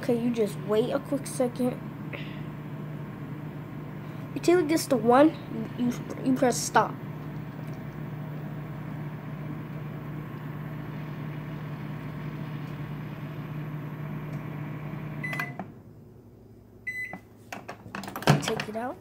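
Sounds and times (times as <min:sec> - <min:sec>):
microwave oven humming: 0:00.0 - 0:17.3
microwave beep: 0:07.0 - 0:15.7, 0:16.9 - 0:17.3.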